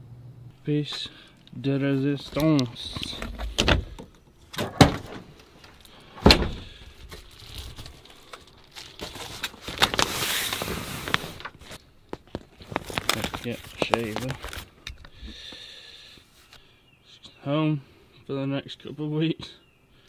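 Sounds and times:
latch and tailgate clunks: 3.2s - 5.3s, 6.2s - 6.7s
nylon bag rustling: 6.8s - 14.8s.

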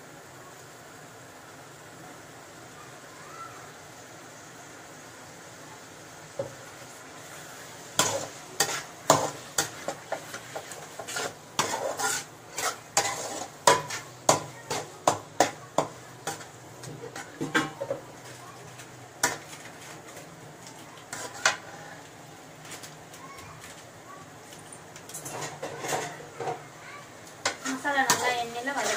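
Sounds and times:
metal spatula scraping a metal pan: 8.0s - 18.0s, 19.2s - 20.2s, 21.1s - 21.8s, 25.1s - 26.6s, 27.4s - 28.9s.

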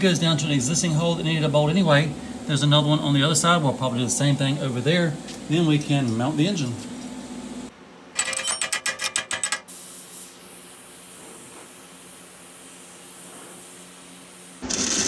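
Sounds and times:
gas torch flame hissing: 9.7s - 15.0s.

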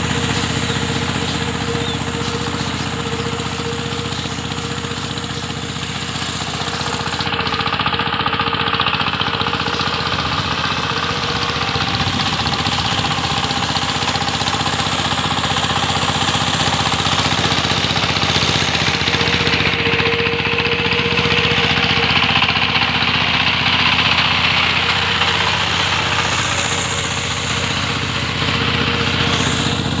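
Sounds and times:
tiller engine running: 0.0s - 30.0s
blades churning mud: 9.5s - 30.0s.

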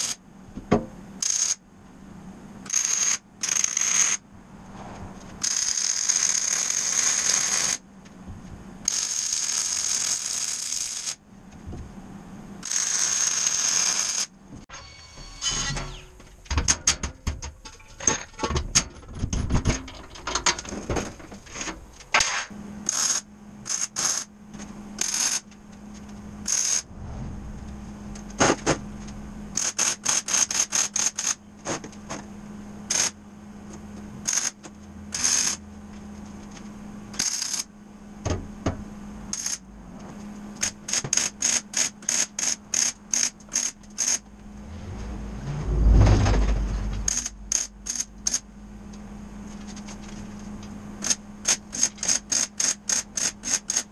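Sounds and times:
arc welder crackling: 5.4s - 7.8s, 21.4s - 24.3s, 25.0s - 26.9s, 29.5s - 31.4s, 34.2s - 35.7s, 37.1s - 37.7s, 39.3s - 39.6s, 40.6s - 44.3s, 47.0s - 48.5s, 49.6s - 53.9s.

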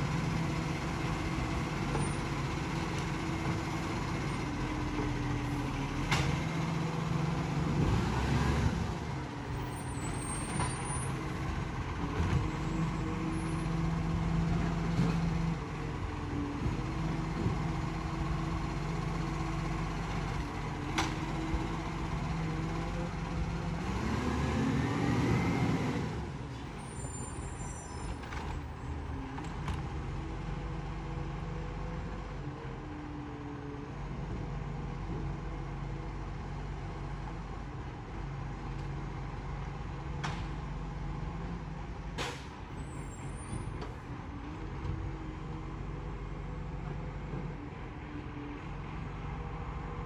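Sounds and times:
diesel truck engine running: 0.0s - 27.0s.

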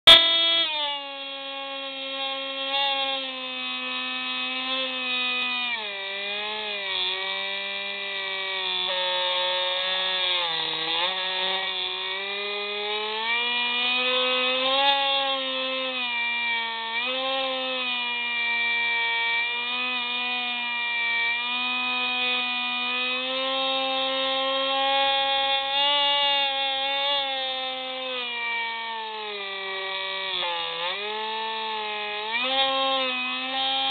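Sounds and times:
electric motor and propeller whining: 0.1s - 33.9s.

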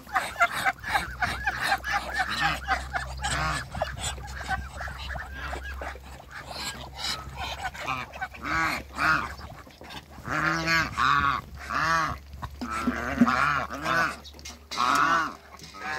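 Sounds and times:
geese honking: 0.0s - 15.9s.

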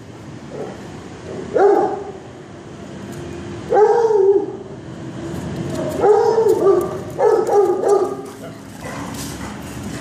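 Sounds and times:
dog barking: 1.5s - 2.1s, 3.7s - 4.5s, 6.0s - 9.1s.

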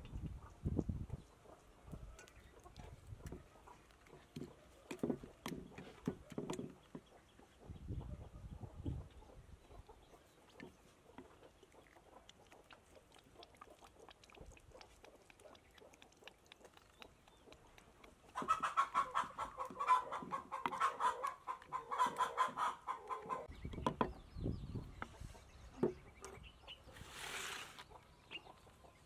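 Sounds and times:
chicken clucking: 17.4s - 23.6s.

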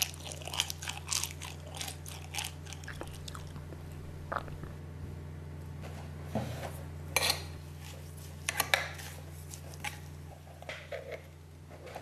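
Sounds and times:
low hum: 1.0s - 6.2s.

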